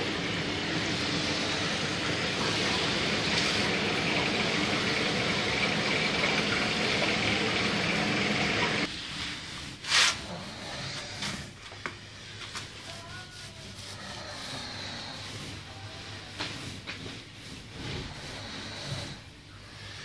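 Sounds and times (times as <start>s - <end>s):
aquarium water and air rushing: 0.0s - 11.5s.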